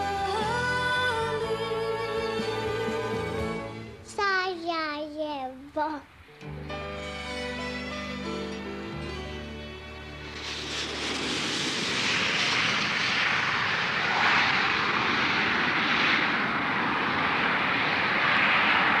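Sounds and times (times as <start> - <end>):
music: 0.0 - 4.1, 6.3 - 10.7
airplane engine rushing: 0.0 - 4.6, 6.1 - 19.0.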